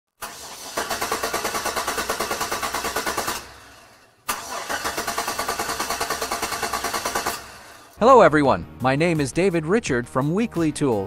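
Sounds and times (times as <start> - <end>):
car engine cranking: 0.2 - 8.0.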